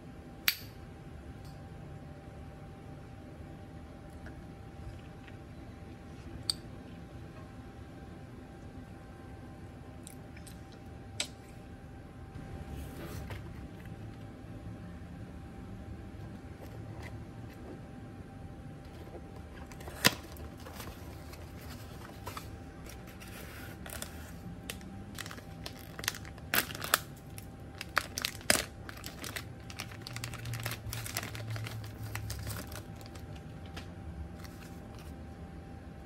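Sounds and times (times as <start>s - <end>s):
plastic wrapping crinkling and tearing: 19.5s - 35.2s.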